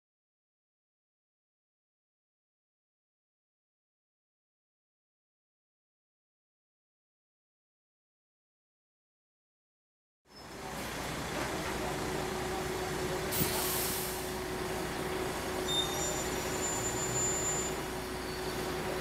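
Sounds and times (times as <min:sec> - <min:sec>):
street traffic rumble: 0:10.3 - 0:19.0
air brake hiss: 0:13.3 - 0:14.4.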